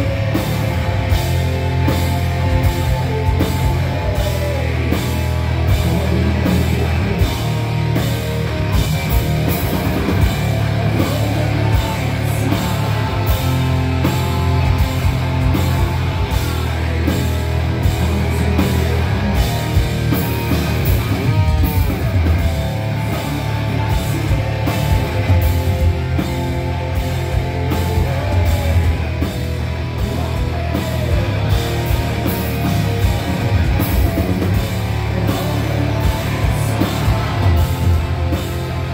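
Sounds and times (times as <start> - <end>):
bass guitar: 0.0 - 38.9
distorted electric guitars: 0.0 - 38.9
drum kit: 0.0 - 38.9.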